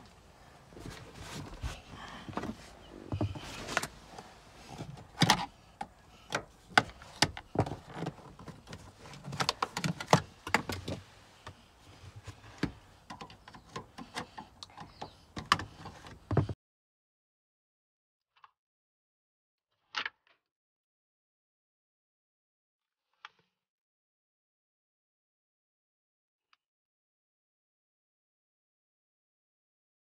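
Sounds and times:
seat frame and plastic knocking: 0:00.8 - 0:11.6, 0:12.2 - 0:16.6.

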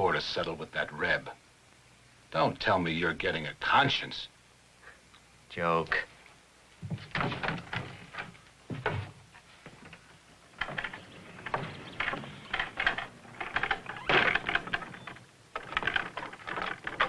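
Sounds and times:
boots knocking and scuffing: 0:06.8 - 0:13.2
wooden door clatter: 0:06.9 - 0:17.0.

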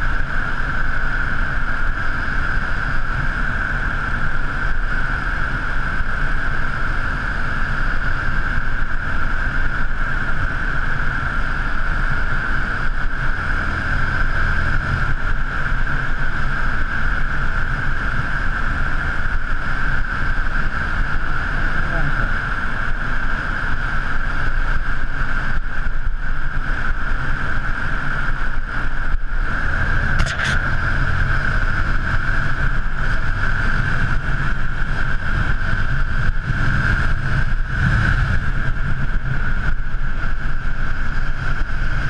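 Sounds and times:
road rumble: 0:00.0 - 0:42.0
wind on microphone: 0:24.8 - 0:42.0
motorcycle engine cruising: 0:25.3 - 0:42.0.

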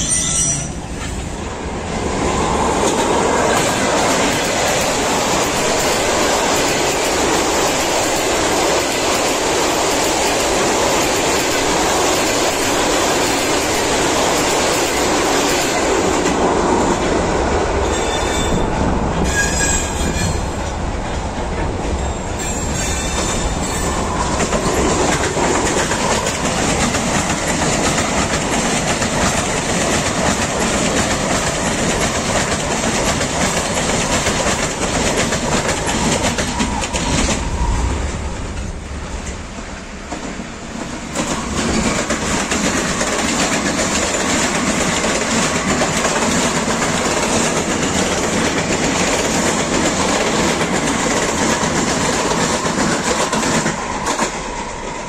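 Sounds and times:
high wheel squeals: 0:00.0 - 0:01.0, 0:17.8 - 0:20.6
train wheels rumbling on rail: 0:00.0 - 0:55.0
clickety-clack over rail joints: 0:02.7 - 0:55.0.

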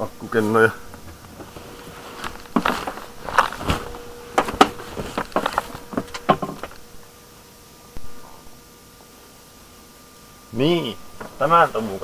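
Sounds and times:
faint steady hum: 0:00.0 - 0:12.0
rustling and knocking on packing: 0:00.9 - 0:07.0.

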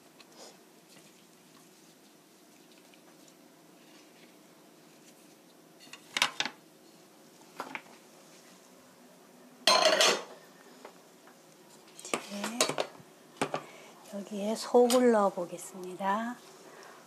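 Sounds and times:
dishes clattering on a table: 0:05.8 - 0:06.6, 0:09.6 - 0:10.4, 0:12.1 - 0:13.7.

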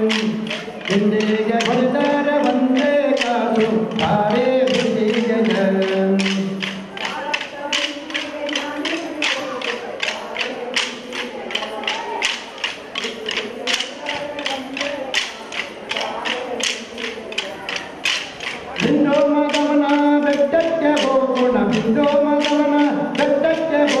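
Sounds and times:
dance sticks clacking: 0:00.0 - 0:24.0
group singing folk song: 0:00.0 - 0:24.0.

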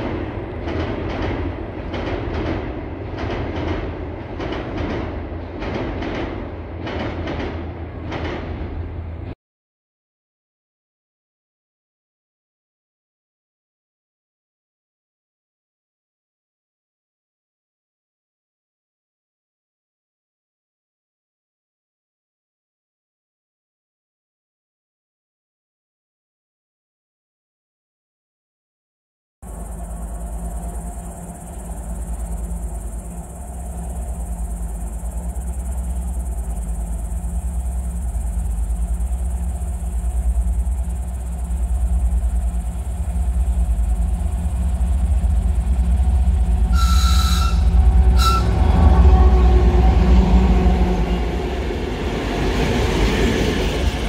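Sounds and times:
diesel locomotive engine rumble: 0:00.0 - 0:09.4, 0:29.4 - 0:54.0
train wheels on rails: 0:00.0 - 0:09.4, 0:29.4 - 0:54.0
train horn blasts: 0:46.7 - 0:51.4.

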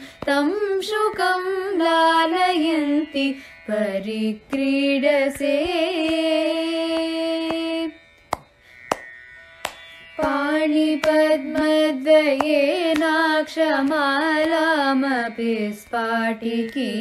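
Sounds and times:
woman singing a hymn: 0:00.0 - 0:07.9, 0:10.2 - 0:17.0
percussion strokes: 0:04.4 - 0:14.8.

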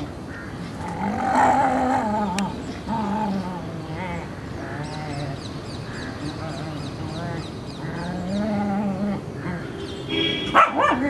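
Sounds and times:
small dogs growling playfully: 0:00.8 - 0:05.4, 0:07.8 - 0:09.6.

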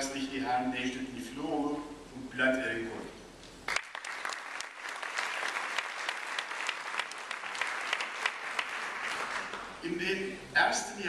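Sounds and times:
audience applauding: 0:03.7 - 0:09.8.

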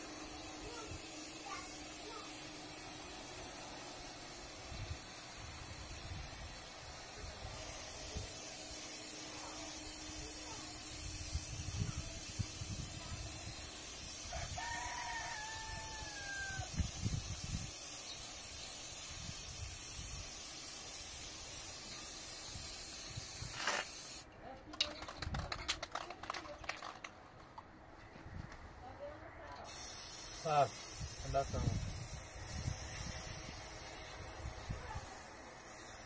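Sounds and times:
spray can hissing: 0:00.0 - 0:24.3, 0:29.6 - 0:36.0
rooster crowing: 0:14.3 - 0:16.7.

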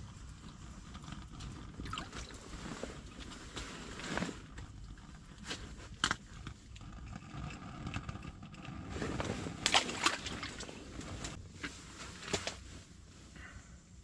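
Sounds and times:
water sloshing and splashing: 0:01.4 - 0:04.6, 0:09.0 - 0:11.4.

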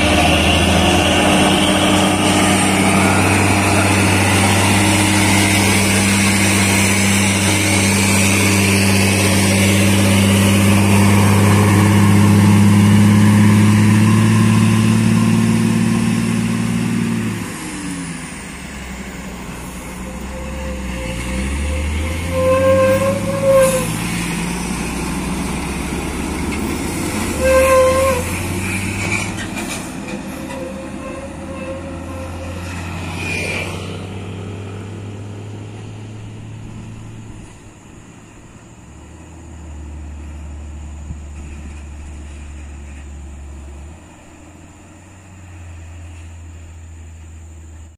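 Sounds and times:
passing traffic: 0:00.0 - 0:47.9
truck diesel engine labouring: 0:00.0 - 0:47.9
vehicle horn blasts: 0:20.0 - 0:24.0, 0:27.4 - 0:28.4.

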